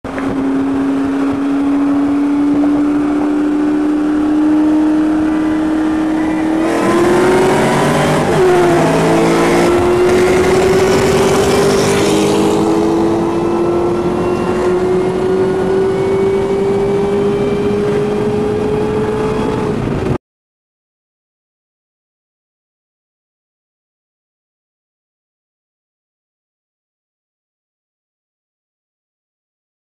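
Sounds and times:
car engines at full throttle: 0.1 - 20.2
loud rush of wind: 0.1 - 20.2.

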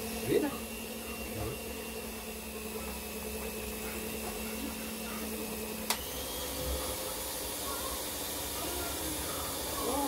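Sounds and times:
electric mixer humming: 0.0 - 10.0.

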